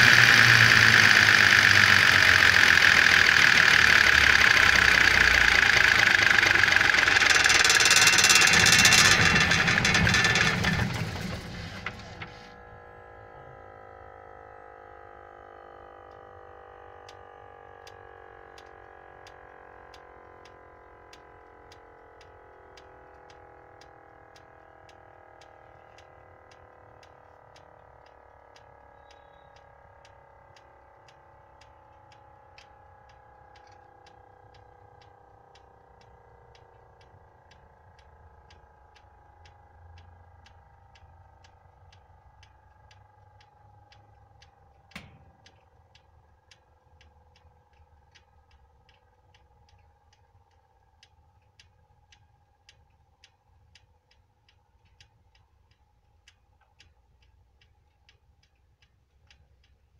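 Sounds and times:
light ticking: 0.0 - 12.4, 17.8 - 59.9
rotor whine falling in pitch: 0.0 - 18.8, 23.6 - 51.9.

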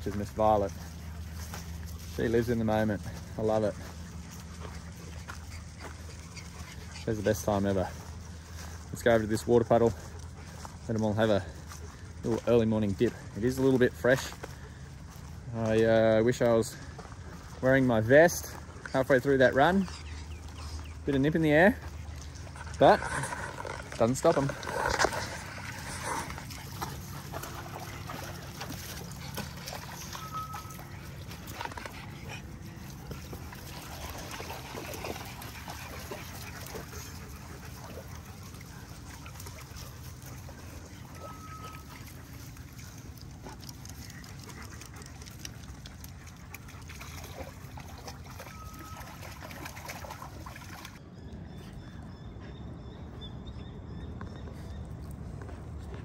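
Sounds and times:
dogs splashing in puddle: 0.0 - 51.0
water trickling: 20.4 - 51.0.

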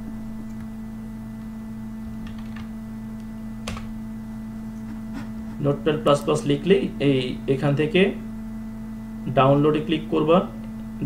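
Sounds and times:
steady electrical hum: 0.0 - 11.0
computer keyboard keystrokes: 2.2 - 2.7, 3.6 - 3.9.

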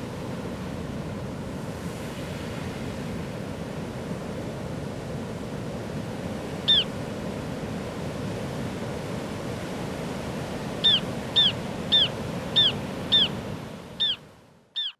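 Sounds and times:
bird chirping calls: 6.7 - 6.9, 10.8 - 13.4, 14.0 - 14.2.

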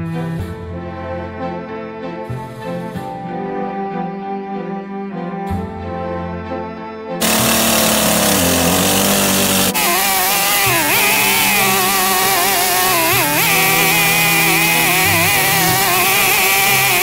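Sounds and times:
chainsaw cutting log: 7.2 - 17.0.

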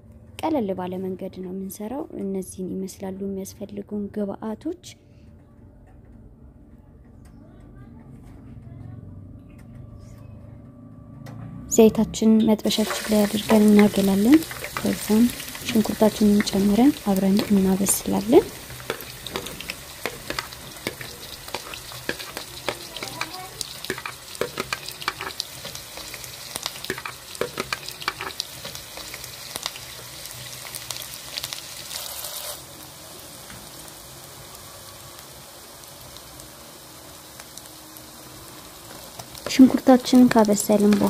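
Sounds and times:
onions sizzling in oil: 12.6 - 41.0
spoon stirring against a pot: 12.7 - 30.0.

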